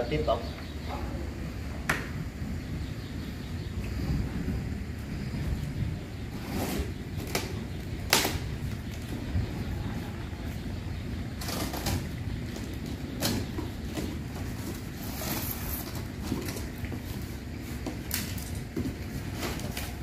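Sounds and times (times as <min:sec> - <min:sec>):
low background noise: 0:00.0 - 0:20.0.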